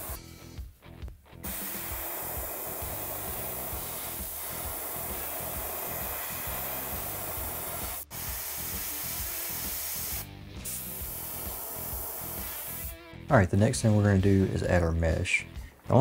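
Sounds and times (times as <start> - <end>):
airbrush air hissing: 0.0 - 0.2, 1.4 - 13.0
background music: 0.0 - 16.0.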